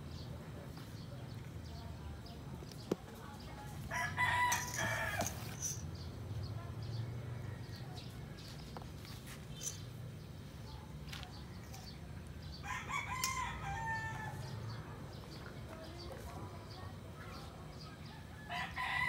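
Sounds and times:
rooster crowing: 3.9s - 5.4s, 12.6s - 14.5s, 18.4s - 19.0s.

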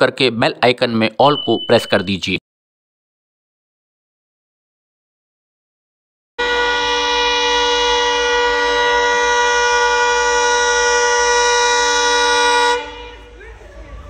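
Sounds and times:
locomotive horn blast: 6.4s - 14.0s.

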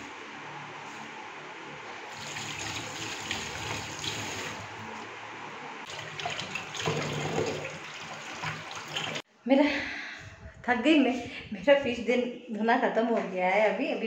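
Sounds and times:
water running into a steel sink: 2.1s - 4.6s, 5.9s - 9.2s.

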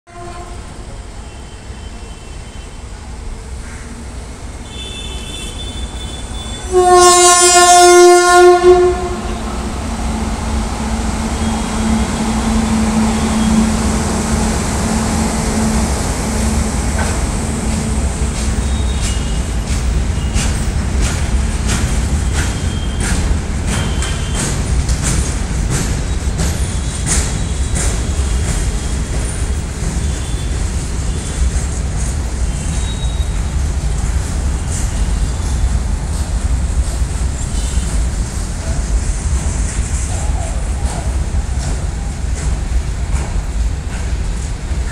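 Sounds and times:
electric locomotive rumbling: 0.1s - 44.9s
train wagons clicking: 16.9s - 44.9s.

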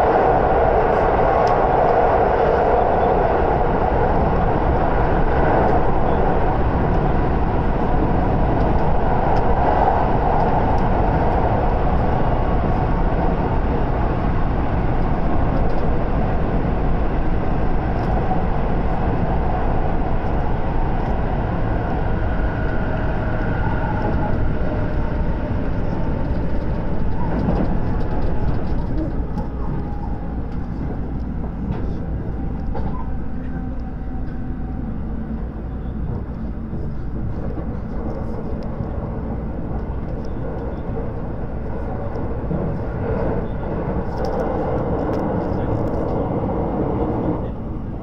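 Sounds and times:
train wheels rumbling on rails: 0.0s - 48.0s.

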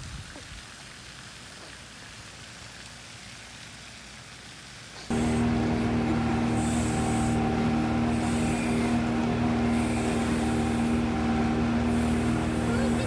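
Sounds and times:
water rushing: 0.0s - 13.0s
wind: 0.0s - 13.0s
outboard motor humming: 5.1s - 13.0s.

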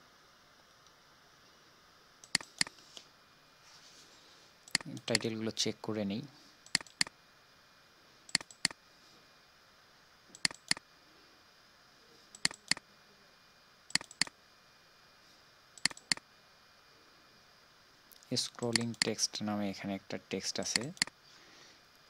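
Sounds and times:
faint room tone hiss: 0.0s - 22.0s
computer mouse double-clicks: 2.2s - 2.8s, 4.7s - 5.2s, 6.7s - 7.1s, 8.3s - 8.8s, 10.4s - 10.8s, 12.4s - 12.8s, 13.9s - 14.3s, 15.8s - 16.2s, 18.6s - 19.1s, 20.7s - 21.1s.

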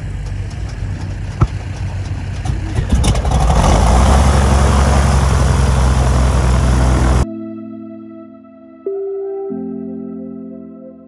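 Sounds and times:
engine running: 0.0s - 7.2s.

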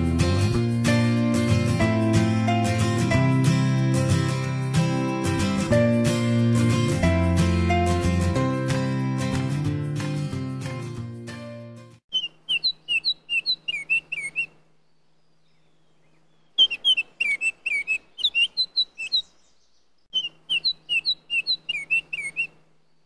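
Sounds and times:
songbird chirping: 12.1s - 23.0s.

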